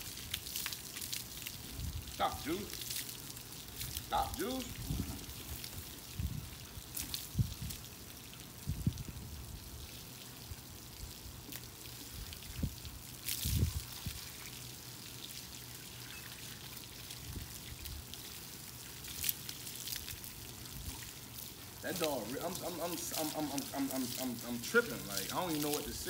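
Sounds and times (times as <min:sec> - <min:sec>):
hose sprayer hissing: 0:20.4 - 0:26.0.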